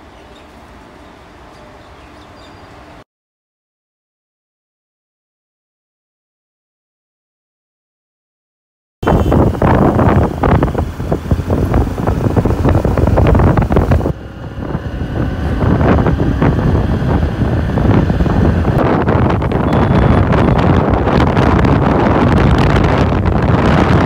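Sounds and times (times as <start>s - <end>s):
vehicle rumble: 9.0s - 24.0s
wind buffeting microphone: 9.0s - 24.0s.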